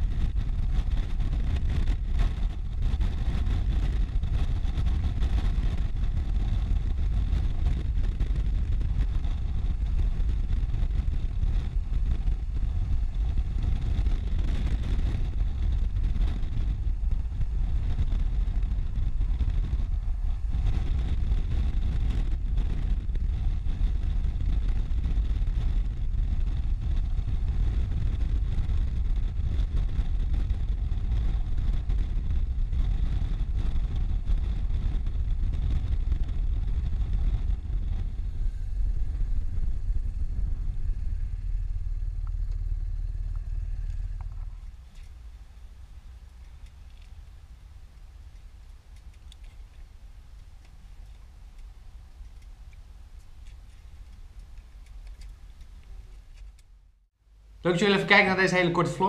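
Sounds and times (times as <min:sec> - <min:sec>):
motorcycle engine running: 0:00.0 - 0:44.9
wind rushing over microphone: 0:00.0 - 0:59.0.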